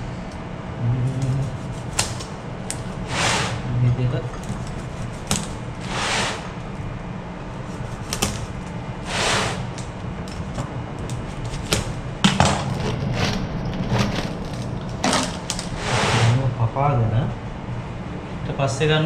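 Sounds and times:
low machinery hum: 0:00.0 - 0:19.0
straps scraping rustles: 0:04.4 - 0:06.6.

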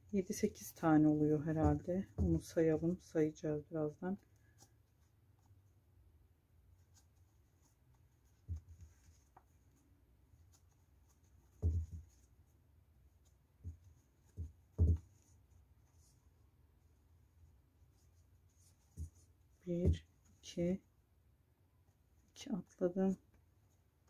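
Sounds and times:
soft low thumps: 0:01.3 - 0:02.9.

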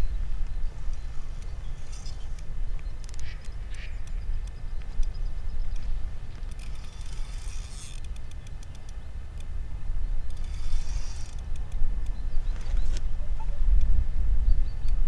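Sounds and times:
fishing reel ticking whirr: 0:00.4 - 0:12.3.

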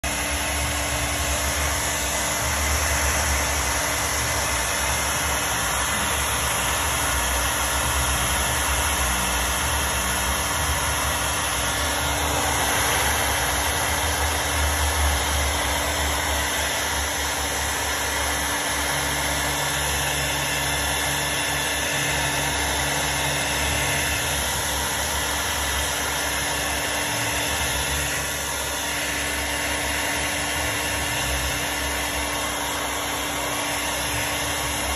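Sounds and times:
blow dryer running: 0:00.0 - 0:34.9.

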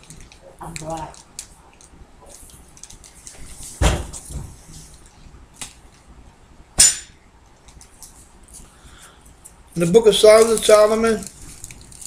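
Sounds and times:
dull thump with rustle: 0:03.8 - 0:04.6.

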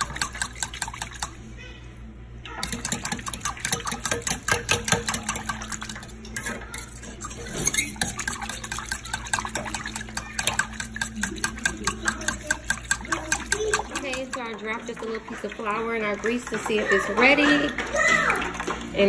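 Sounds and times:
utensil scraping a saucepan: 0:02.6 - 0:15.8
gravy bubbling: 0:02.6 - 0:19.0.

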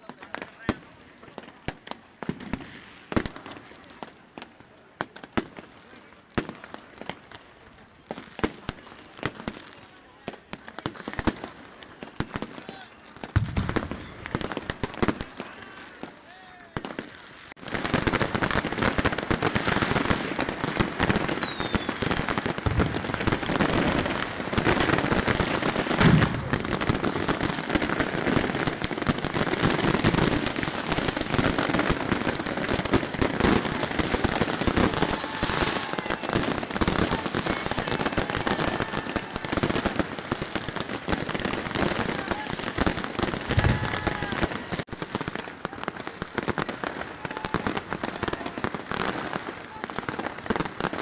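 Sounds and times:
firecrackers and fireworks cracking: 0:00.0 - 0:51.0
loud firework bang: 0:26.0 - 0:27.0.

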